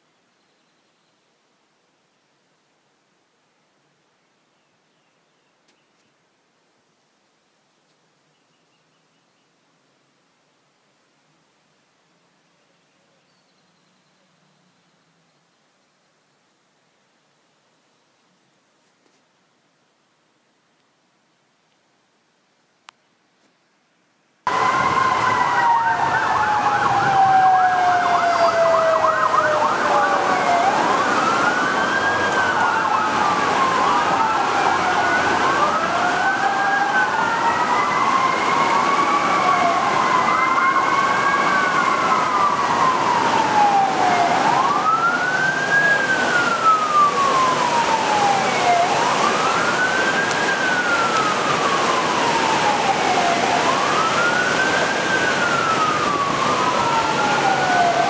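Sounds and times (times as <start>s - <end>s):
siren yelp: 24.5s - 58.0s
sirens wailing: 24.5s - 58.0s.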